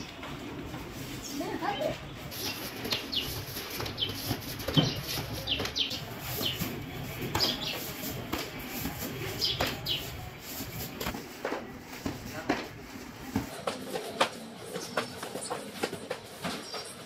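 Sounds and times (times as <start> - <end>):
birds chirping: 1.1 - 11.1, 13.4 - 17.0.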